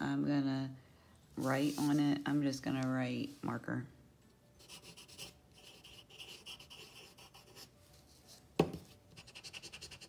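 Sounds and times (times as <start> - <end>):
pencil scratching on paper: 4.6 - 7.7, 9.1 - 10.0.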